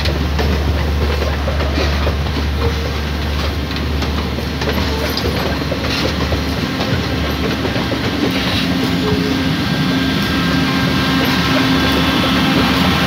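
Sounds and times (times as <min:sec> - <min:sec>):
wheels clicking over rail joints: 0:00.0 - 0:09.4
train carriages rumbling past: 0:00.0 - 0:13.0.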